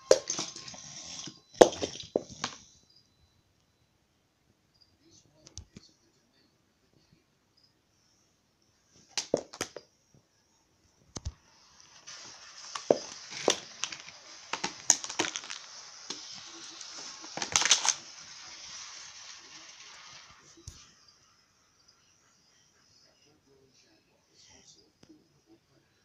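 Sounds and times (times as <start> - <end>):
steady hiss: 11.2 - 26.0
plastic track pieces clicking: 12.1 - 20.4.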